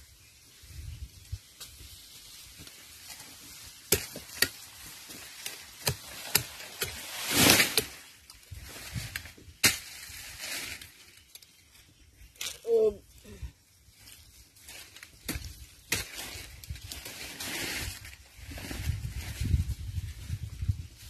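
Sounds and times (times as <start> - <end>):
corn stalks rustling: 0.0 - 21.0
stalks snapping: 3.8 - 4.6, 5.2 - 8.4.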